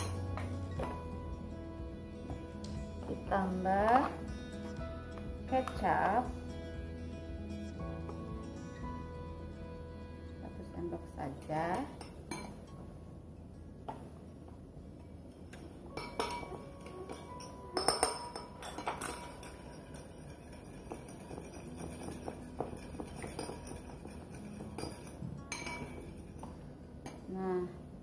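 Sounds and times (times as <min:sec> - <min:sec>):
metal spoon clinking ceramic bowl: 0:00.0 - 0:01.0, 0:11.4 - 0:12.7, 0:15.9 - 0:27.3.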